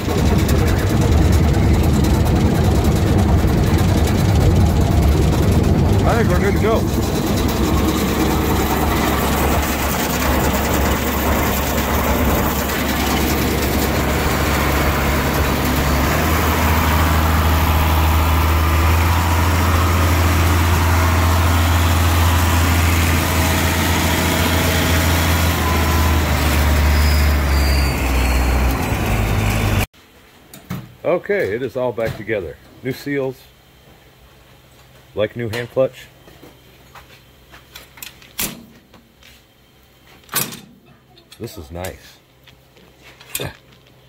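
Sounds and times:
tractor engine running: 0:00.0 - 0:29.9.

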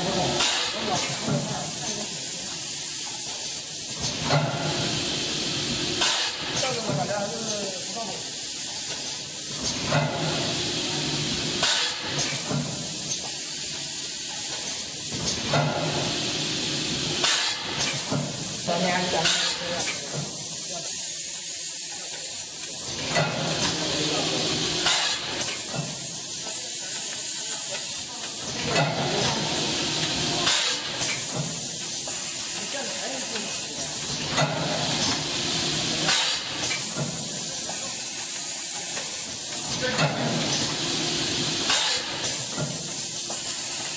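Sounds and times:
packing machine humming: 0:00.0 - 0:21.3, 0:22.3 - 0:43.9
pneumatic air hiss bursts: 0:01.9 - 0:06.6, 0:08.2 - 0:28.6, 0:29.9 - 0:43.9
machine clacks: 0:17.2 - 0:20.4, 0:30.0 - 0:33.7, 0:36.0 - 0:40.8, 0:41.6 - 0:43.9.

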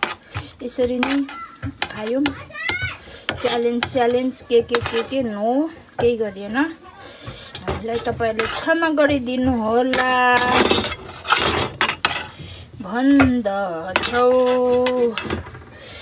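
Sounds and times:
metal spoon scraping metal tray: 0:00.0 - 0:02.4, 0:03.3 - 0:05.4, 0:07.2 - 0:09.2, 0:09.8 - 0:12.4, 0:13.9 - 0:15.6.

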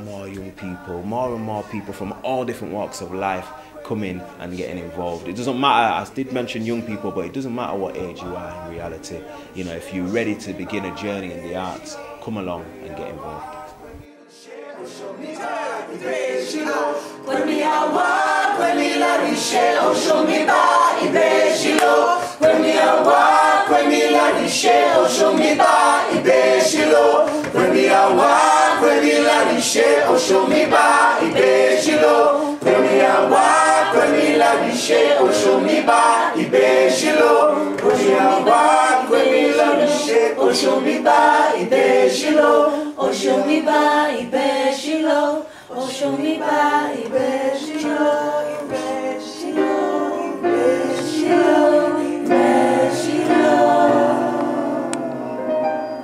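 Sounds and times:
group singing in parts: 0:00.0 - 0:56.0.

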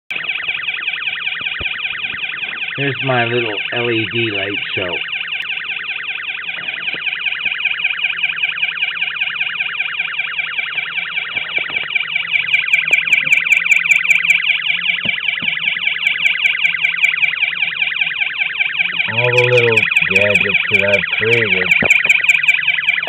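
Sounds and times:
electronic siren warble: 0:00.1 - 0:23.0
high-pitched beeps: 0:18.7 - 0:23.0.

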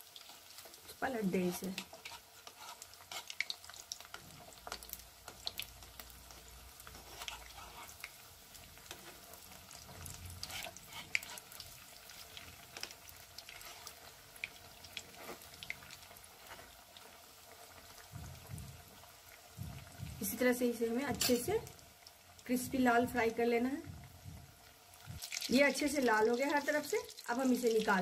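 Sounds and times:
hot oil sizzling and popping: 0:00.0 - 0:28.0
metal spatula in oil: 0:00.2 - 0:17.2, 0:21.1 - 0:21.6.

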